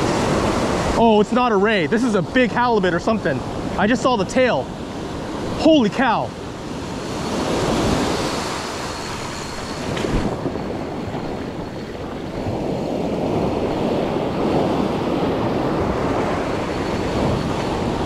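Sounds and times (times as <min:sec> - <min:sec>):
surf washing in: 0:00.0 - 0:18.0
wind on microphone: 0:06.4 - 0:18.0.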